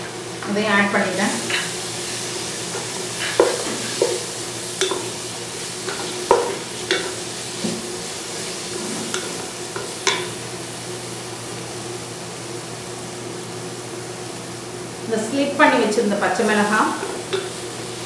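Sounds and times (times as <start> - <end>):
onions sizzling in oil: 0.0 - 18.0
wooden spatula scraping a pan: 7.6 - 9.4.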